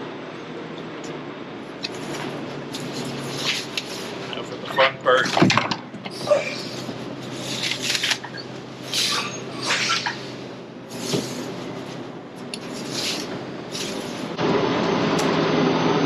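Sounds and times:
steady background hum: 0.0s - 16.0s
rustling and scraping handling: 1.9s - 4.5s, 6.4s - 14.4s.

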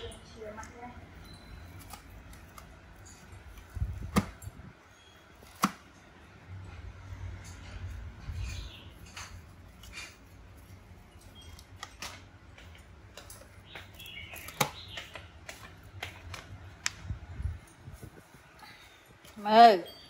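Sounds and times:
faint clicks and taps: 11.6s - 17.1s.

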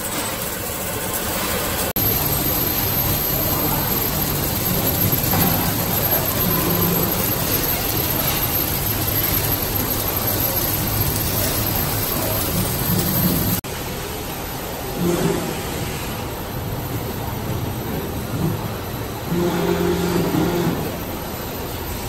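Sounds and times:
seam welding machine humming: 0.0s - 13.6s, 19.2s - 21.3s.

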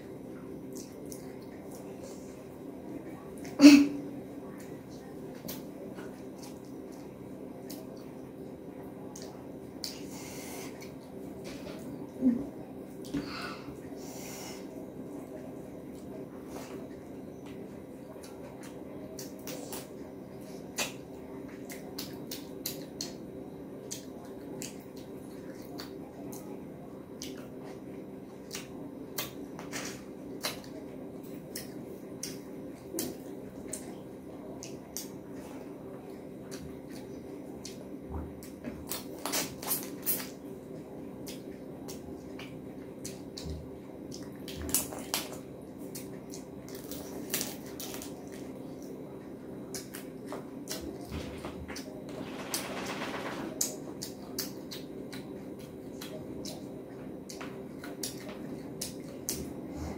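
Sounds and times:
wet chewing and lip-smacking: 0.7s - 2.0s, 9.0s - 11.0s, 20.6s - 23.2s, 23.8s - 26.5s, 27.2s - 27.8s, 28.4s - 35.3s, 36.1s - 40.5s, 41.2s - 51.0s, 53.6s - 59.8s.

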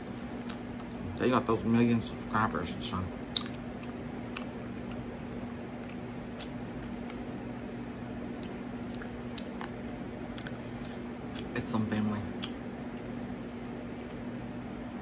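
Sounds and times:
person chewing food: 0.3s - 1.1s, 3.3s - 7.4s, 8.2s - 11.5s, 12.4s - 13.2s.

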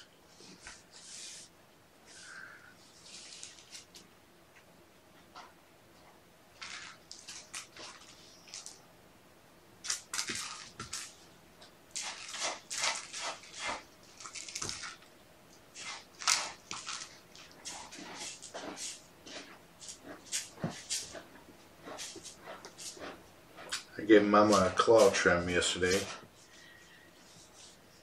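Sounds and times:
kittens rustling and scuffling: 5.1s - 8.8s, 9.8s - 28.0s.

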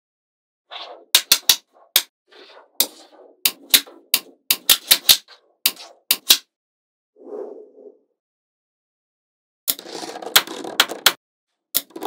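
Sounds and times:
magnetic balls snapping together: 1.2s - 2.1s, 2.8s - 6.4s.

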